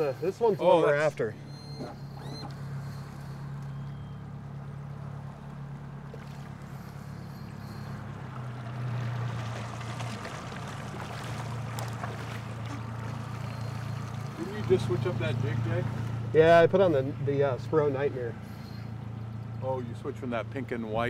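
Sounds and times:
outboard motor running: 0.0 - 21.0
river water rushing: 6.1 - 16.3.

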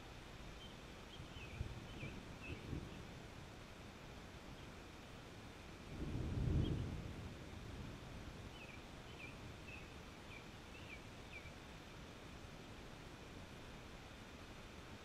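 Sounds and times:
outdoor background noise: 0.0 - 15.0
low thunder rumble: 5.9 - 8.5
bird chirping: 8.5 - 11.6.

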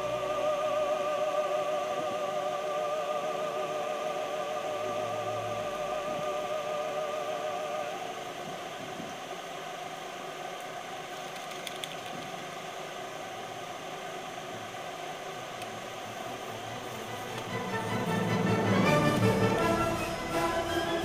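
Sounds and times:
soft background music: 16.8 - 21.0.

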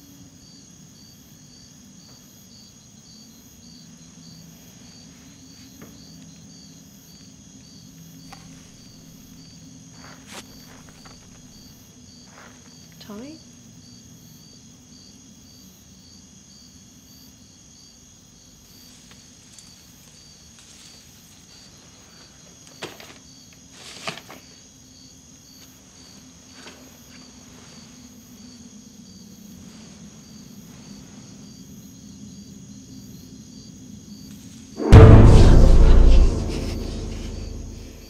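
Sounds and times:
crickets chirping: 0.0 - 34.8
low hum: 34.8 - 38.0.

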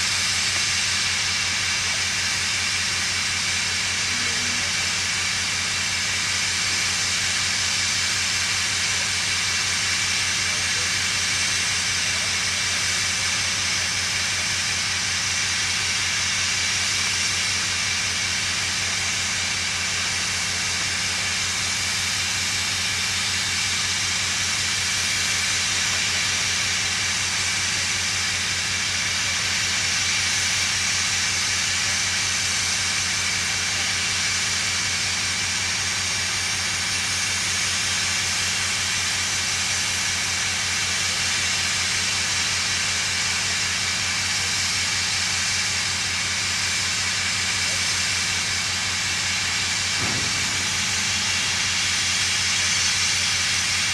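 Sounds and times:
steam hissing: 0.0 - 53.9
low fast throb: 48.8 - 53.9.

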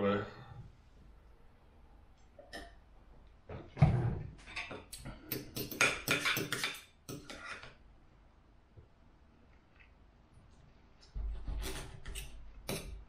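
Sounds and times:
knife and fork scraping plate: 5.6 - 7.8, 11.6 - 13.0.

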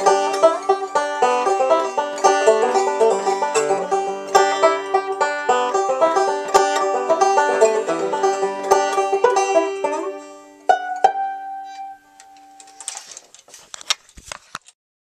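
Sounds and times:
banjo picking: 0.0 - 12.8
faint clicks and rustles: 12.5 - 14.8.

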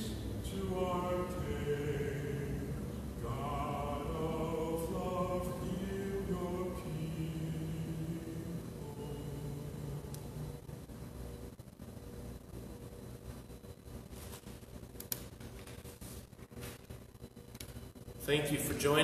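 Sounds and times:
man singing chant-like song: 0.0 - 10.1.

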